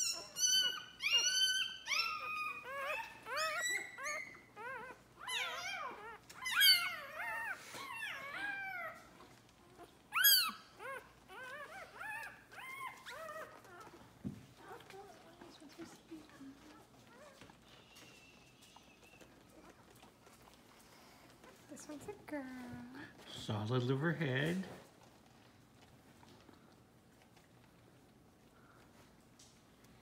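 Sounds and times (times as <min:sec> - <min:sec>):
puppy crying and squealing: 0:00.0 - 0:15.2.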